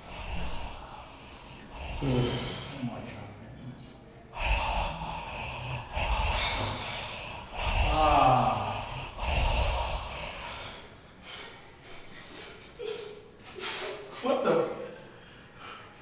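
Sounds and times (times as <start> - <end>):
man breathing heavily: 0.0 - 3.3, 4.3 - 12.1
man groaning: 7.6 - 9.0.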